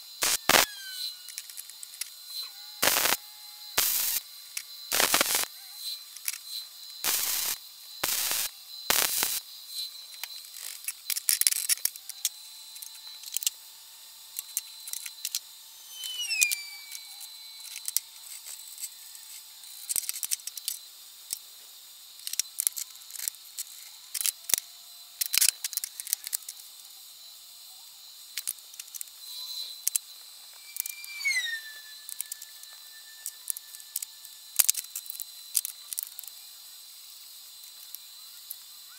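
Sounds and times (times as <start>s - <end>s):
welder crackling: 0.0s - 1.6s, 2.8s - 3.2s, 3.8s - 4.2s, 4.9s - 5.5s, 7.0s - 9.4s, 30.6s - 34.8s.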